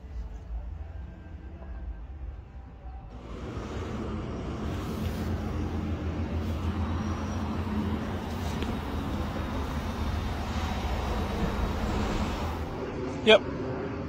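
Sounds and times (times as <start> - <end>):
vehicle motor rumbling: 3.1 - 14.0.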